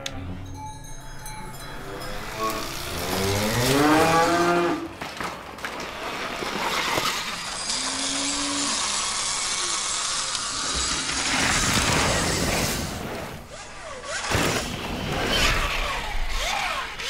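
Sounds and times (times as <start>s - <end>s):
cows mooing: 1.6s - 5.0s, 7.7s - 9.1s
electric dirt bike running: 1.7s - 17.0s.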